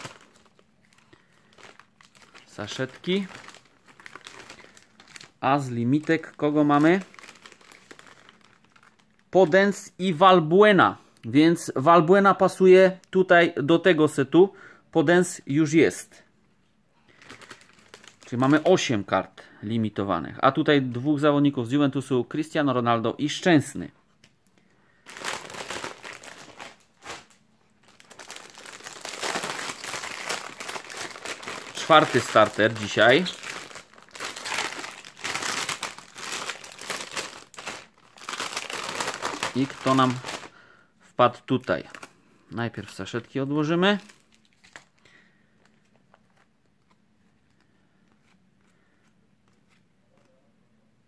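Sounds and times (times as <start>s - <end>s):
foil packaging crinkling: 0.0s - 9.4s, 17.1s - 19.0s, 25.0s - 40.6s, 41.5s - 48.7s
trading cards being handled: 45.5s - 50.4s.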